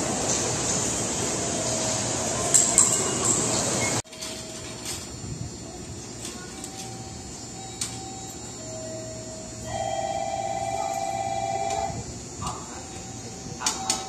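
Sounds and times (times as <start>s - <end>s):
train humming at platform: 0.0s - 14.0s
electronic departure bell ringing: 6.6s - 12.0s.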